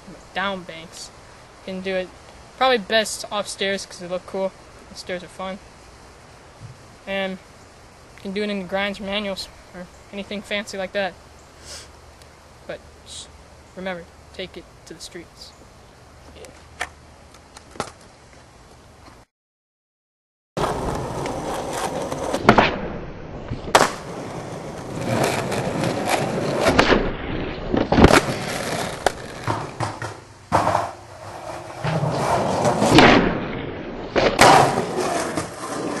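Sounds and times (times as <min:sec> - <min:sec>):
skateboard wheels rolling on pavement: 0:16.3 - 0:19.2, 0:20.6 - 0:22.7, 0:23.4 - 0:36.0
skateboard tail popping and landing: 0:17.6 - 0:18.1, 0:20.6 - 0:36.0.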